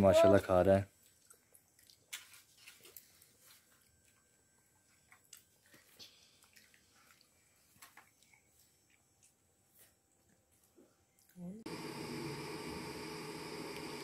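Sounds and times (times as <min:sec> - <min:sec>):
person chewing food: 0:01.0 - 0:11.4.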